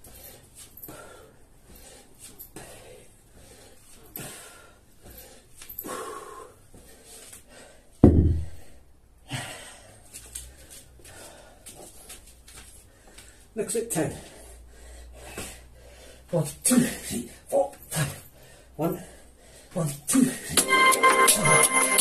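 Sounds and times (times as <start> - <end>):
heavy panting breaths: 0.0 - 8.0, 8.6 - 20.6
heavy thud: 8.0 - 8.7.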